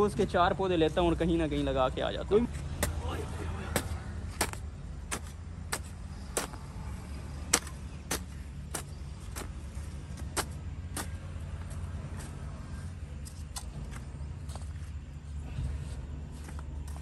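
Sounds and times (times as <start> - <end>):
steady low rumble: 2.0 - 17.0
hoe chopping into stony soil: 2.8 - 3.0, 3.7 - 6.6, 7.5 - 9.6.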